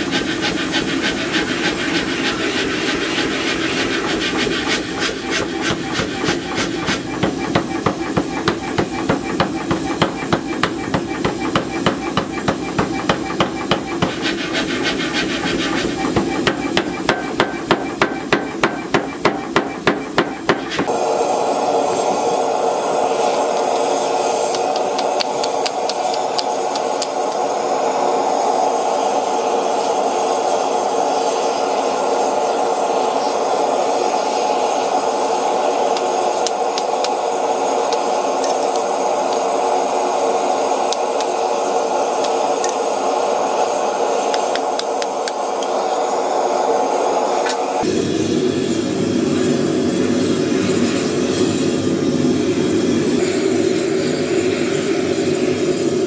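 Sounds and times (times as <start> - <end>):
power hammer striking steel: 4.1 - 20.9.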